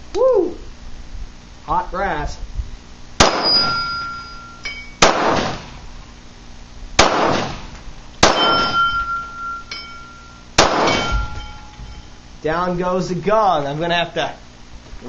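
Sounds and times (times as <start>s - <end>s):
pistol shots: 3.2s - 4.0s, 5.0s - 5.8s, 7.0s - 9.2s, 10.6s - 11.4s
steel gong target ringing: 3.2s - 5.0s, 8.2s - 12.2s.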